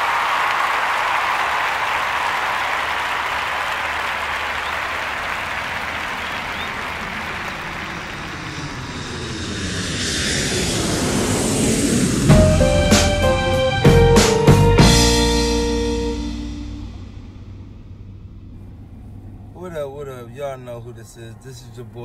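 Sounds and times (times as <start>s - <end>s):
crowd applause: 0.0s - 9.3s
aircraft flying past: 2.4s - 14.4s, 15.2s - 20.9s.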